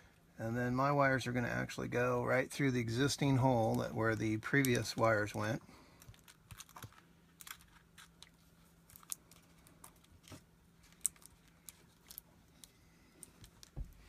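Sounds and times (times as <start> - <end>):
faint steady hum: 0.0 - 14.0
small clicks taps and crinkles: 3.6 - 14.0.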